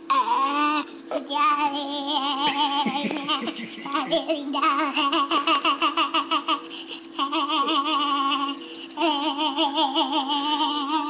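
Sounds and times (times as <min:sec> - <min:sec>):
young child giggling: 0:02.2 - 0:11.0.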